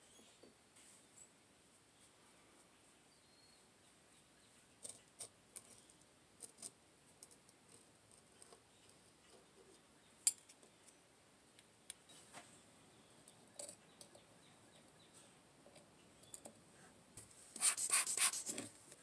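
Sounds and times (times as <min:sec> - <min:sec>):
small metal tools clicking and scraping: 0:04.8 - 0:09.4, 0:10.2 - 0:11.0, 0:13.2 - 0:14.2.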